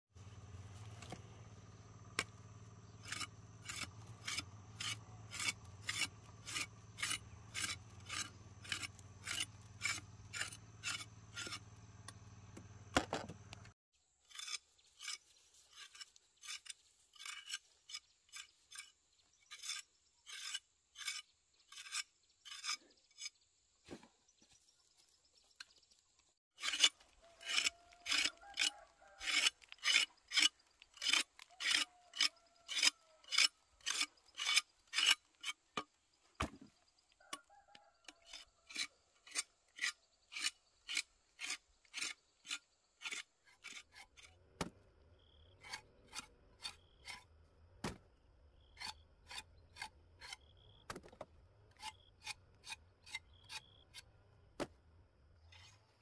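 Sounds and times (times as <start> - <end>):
knife scraping roots: 2.1 - 11.8, 14.3 - 23.4, 26.6 - 36.0, 38.1 - 44.3, 45.5 - 47.3, 48.6 - 50.7.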